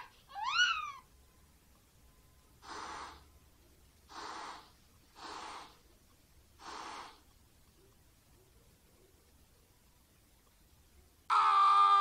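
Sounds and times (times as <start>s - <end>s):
person breathing heavily: 2.6s - 3.3s, 4.1s - 5.8s, 6.6s - 7.3s.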